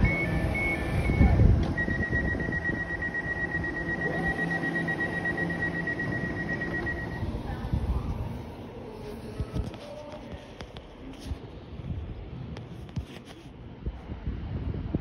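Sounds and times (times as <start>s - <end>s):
rapidly pulsing warning beep: 0.0s - 8.4s
train low hum: 0.0s - 12.8s.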